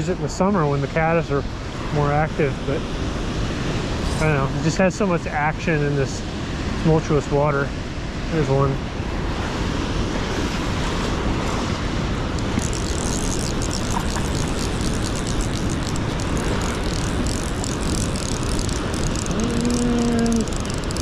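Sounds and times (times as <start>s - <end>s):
river rushing: 2.7s - 21.0s
hissy water splashing: 9.2s - 21.0s
small waves washing onto gravel: 12.4s - 21.0s.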